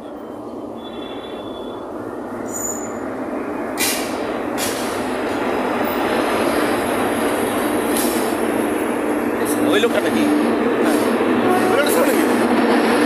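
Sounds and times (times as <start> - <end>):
locomotive engine and wheels rumbling: 0.0 - 13.0
high wheel squeals: 0.2 - 3.2.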